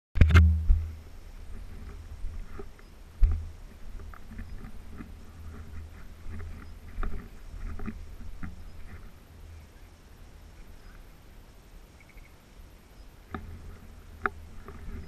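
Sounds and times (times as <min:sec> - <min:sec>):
sharp knock: 0:00.2 - 0:00.9
low rumble against microphone: 0:00.2 - 0:11.6
footsteps through dry grass: 0:01.4 - 0:09.5.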